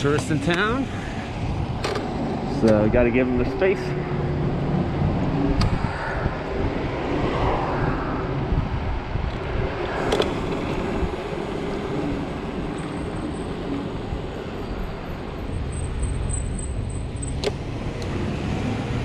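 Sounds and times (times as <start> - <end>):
wind buffeting microphone: 0.0 - 14.6
tyres rumbling on pavement: 6.6 - 19.0.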